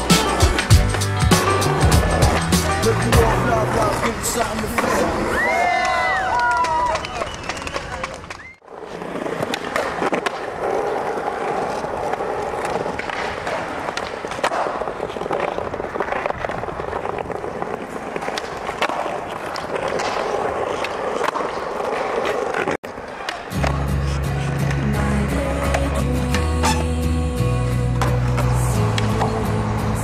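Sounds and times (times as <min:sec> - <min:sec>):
music with deep bass: 0:00.0 - 0:03.7
skateboard clacks: 0:00.0 - 0:24.8
skateboard wheels rolling on concrete: 0:00.0 - 0:30.0.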